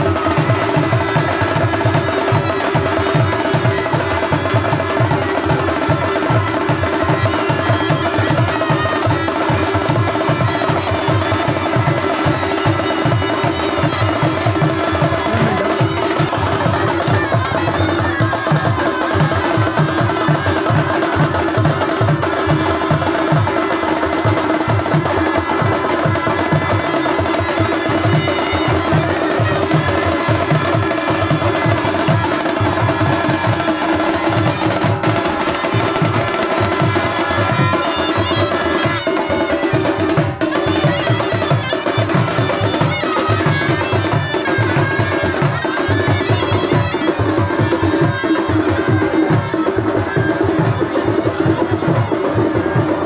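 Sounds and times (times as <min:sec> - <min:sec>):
barrel drums beating rapidly: 0:00.0 - 0:53.0.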